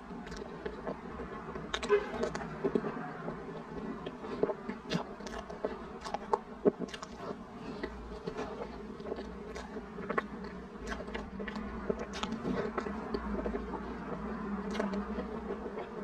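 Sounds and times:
steady low hum: 0.0 - 16.0
wet mouth smacking and chewing: 0.0 - 16.0.

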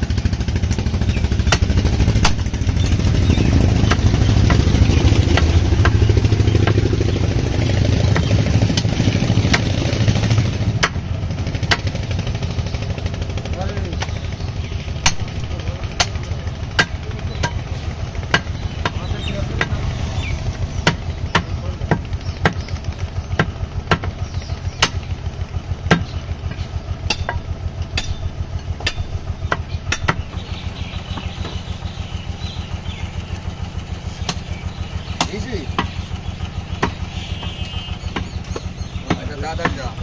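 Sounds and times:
engine running steadily: 0.0 - 40.0
cleaver chopping on wooden block: 1.4 - 2.6, 3.7 - 6.9, 8.0 - 12.0, 15.0 - 15.4, 16.0 - 25.1, 25.8 - 30.4, 34.2 - 34.5, 35.1 - 36.0, 36.8 - 40.0.

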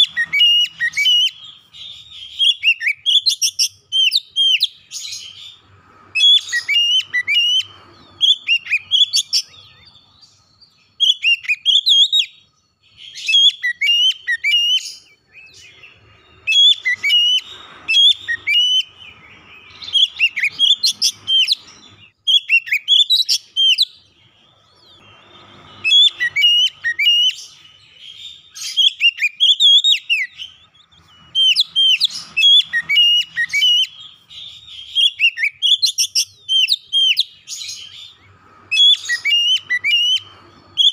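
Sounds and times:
songbird whistling and chirping: 0.0 - 40.9.

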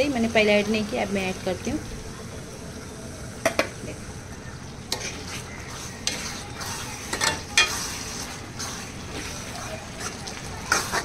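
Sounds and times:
minced meat sizzling in a pan: 0.0 - 11.0
spoon knocking and scraping pan: 4.9 - 8.2.

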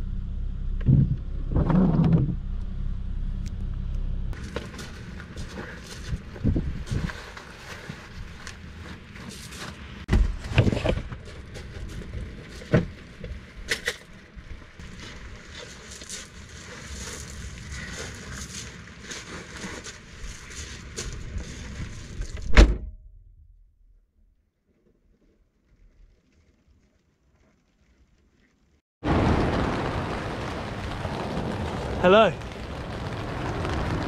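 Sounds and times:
wind: 0.0 - 34.0
rustling: 4.4 - 22.5.

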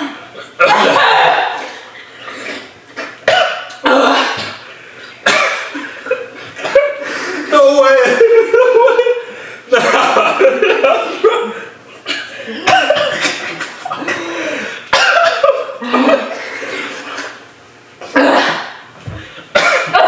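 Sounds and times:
woman coughing: 0.0 - 1.9, 3.2 - 4.6, 5.2 - 7.0, 11.3 - 16.5, 18.1 - 18.8, 19.5 - 20.0.

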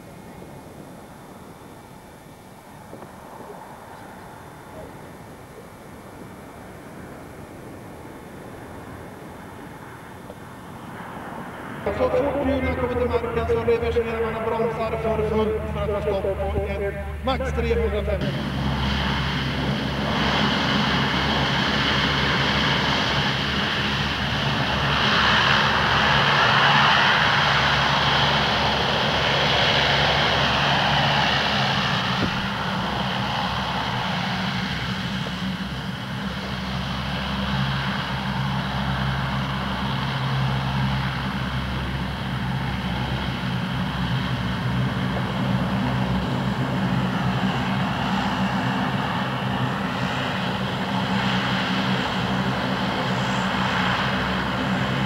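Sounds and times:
propeller drone: 0.0 - 55.0
turboprop engines roaring: 0.0 - 55.0.

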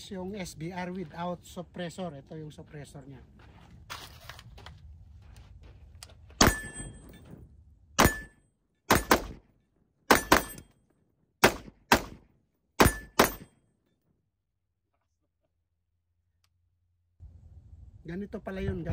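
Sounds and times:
rifle shots: 8.0 - 8.3, 8.9 - 9.5, 10.1 - 10.7, 11.4 - 13.6.

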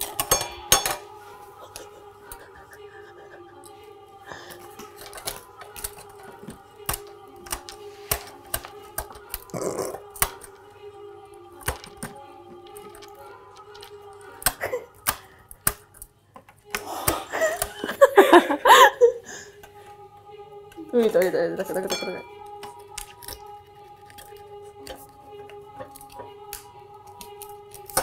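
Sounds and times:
tools picking at candy on metal: 0.0 - 1.2
faint steady music: 0.0 - 28.0
woman laughing: 1.5 - 4.5, 14.6 - 15.0, 17.0 - 19.5.

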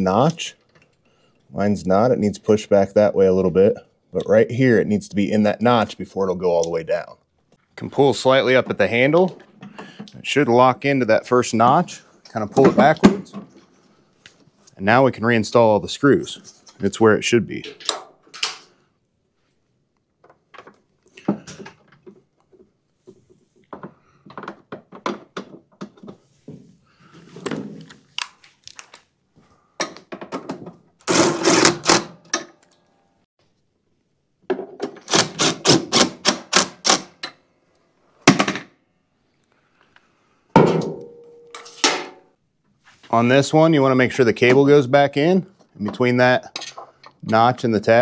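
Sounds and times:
parts knocking and clunking: 20.2 - 26.6, 29.8 - 32.7
parts clattering: 45.6 - 47.5.

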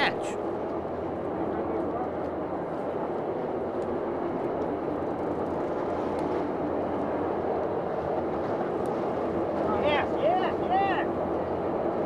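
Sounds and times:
water: 0.0 - 12.0
wind: 0.0 - 12.0.

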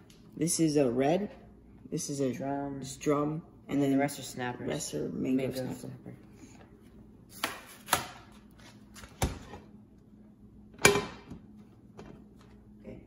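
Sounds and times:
kitchenware knocking and clattering: 10.8 - 11.4.

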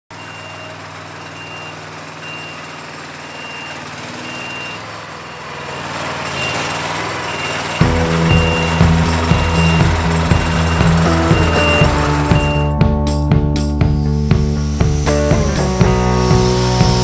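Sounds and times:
reversing alarm beeping: 0.1 - 12.8
loud low pitched sound: 7.8 - 17.0.

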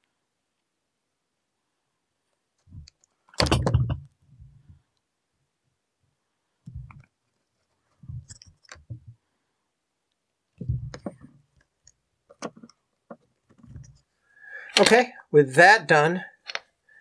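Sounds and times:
plastic case knocks and clicks: 3.4 - 4.1, 10.6 - 11.3.

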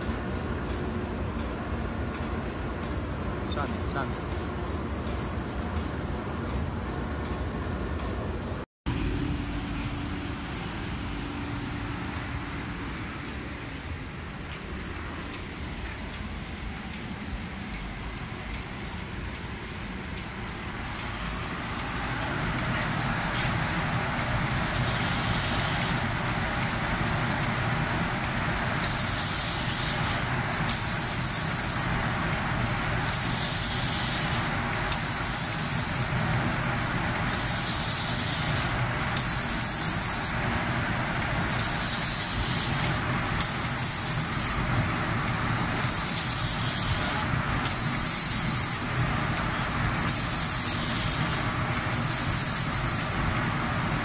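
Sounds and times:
machine humming: 8.9 - 54.0
spray guns hissing: 9.0 - 32.0, 33.0 - 36.2, 37.3 - 40.4, 41.5 - 44.7, 45.8 - 49.0, 50.0 - 53.2.

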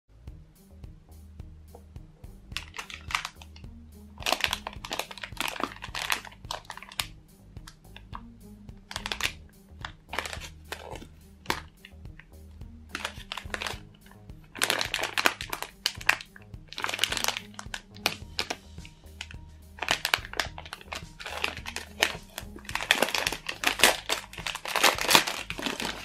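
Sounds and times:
foam squishy squeezed in bag: 2.6 - 3.6, 4.2 - 7.1, 8.9 - 12.0, 12.9 - 26.0
plastic bags crinkling: 2.6 - 3.6, 4.2 - 7.1, 8.9 - 12.0, 12.9 - 26.0.

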